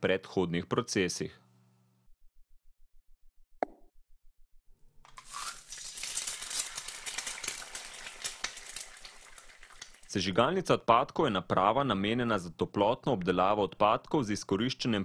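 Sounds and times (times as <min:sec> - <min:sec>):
fire crackling and sizzling: 0:05.2 - 0:10.2.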